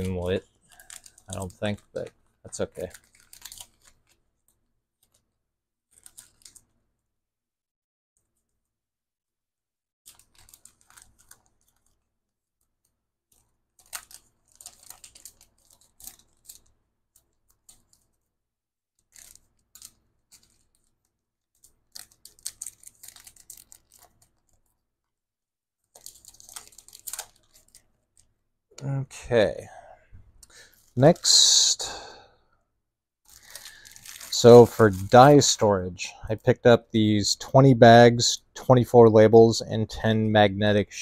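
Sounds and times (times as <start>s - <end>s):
paper rustling and crinkling: 0.0s - 5.3s, 5.9s - 6.8s, 10.1s - 18.3s, 19.0s - 24.8s, 25.9s - 28.3s, 33.3s - 35.5s.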